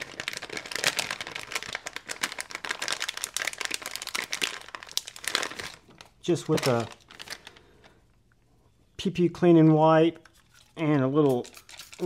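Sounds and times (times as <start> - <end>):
wipe wrapper crinkling: 0.0 - 8.0.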